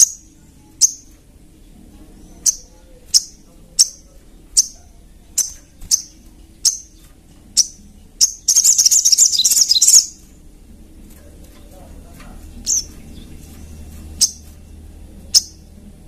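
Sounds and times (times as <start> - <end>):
rapid chattering bird trill: 0.0 - 1.2, 2.2 - 10.3, 11.9 - 14.6, 15.2 - 15.8
bird chip notes: 2.3 - 10.2.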